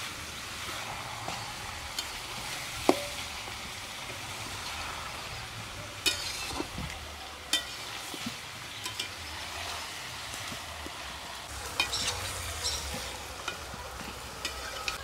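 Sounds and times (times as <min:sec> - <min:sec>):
chicken sizzling in a pan: 0:00.0 - 0:15.0
metal spatula scraping a pan: 0:00.5 - 0:03.6, 0:05.8 - 0:10.7, 0:11.5 - 0:15.0.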